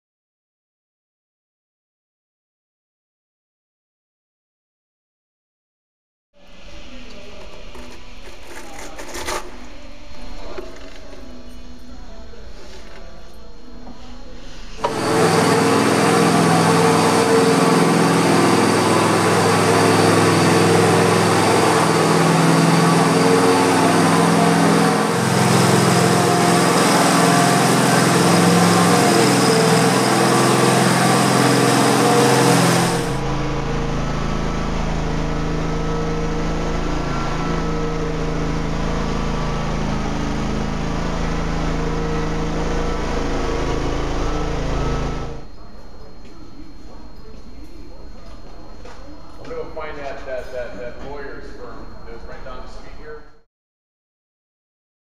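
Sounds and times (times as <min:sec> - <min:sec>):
low hum: 0:06.4 - 0:48.0
floor burnisher engine running: 0:06.4 - 0:49.9.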